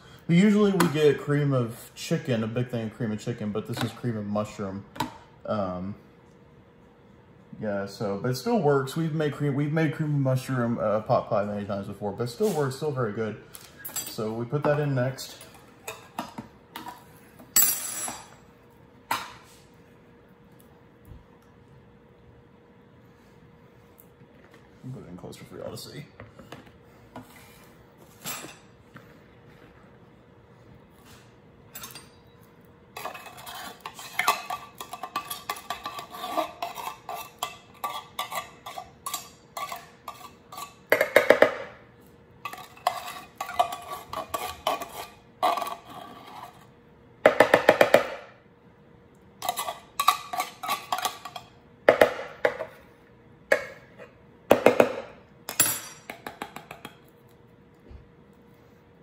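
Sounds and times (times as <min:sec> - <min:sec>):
knife scraping inside tin can: 0:33.0 - 0:40.8, 0:42.4 - 0:46.7.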